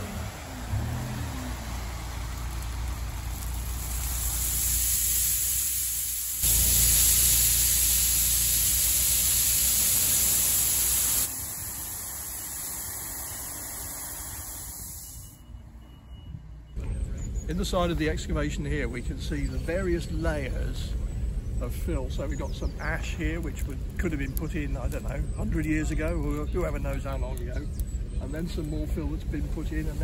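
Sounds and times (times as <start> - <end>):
dumper engine running: 0.0 - 15.3
rushing hiss of pouring pellets: 2.1 - 15.3.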